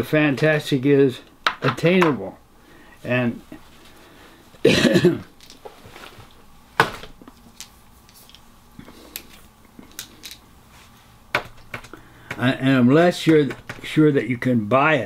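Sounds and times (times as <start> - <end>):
man coughing: 4.6 - 5.3.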